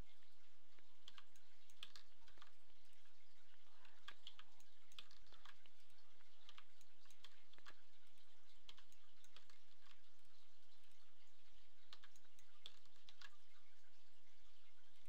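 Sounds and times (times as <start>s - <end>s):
computer mouse clicks: 0.8s - 13.6s
keyboard keys clicking: 1.0s - 2.6s, 3.8s - 5.7s, 8.7s - 10.0s, 11.8s - 13.4s.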